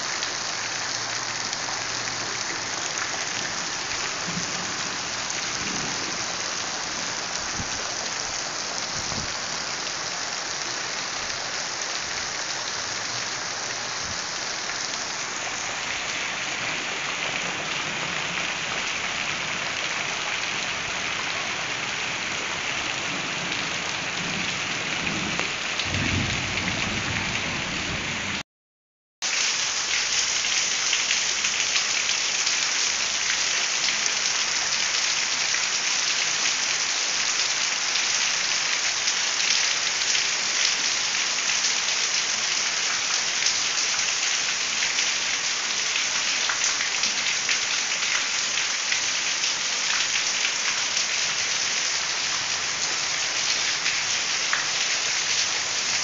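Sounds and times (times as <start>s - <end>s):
heavy rain pouring: 0.0s - 28.4s, 29.2s - 56.0s.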